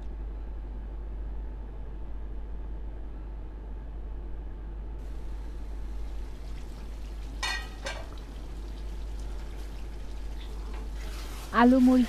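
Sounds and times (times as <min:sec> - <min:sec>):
curry simmering and sizzling: 0:05.0 - 0:12.0
metal lid clanking: 0:07.4 - 0:08.2.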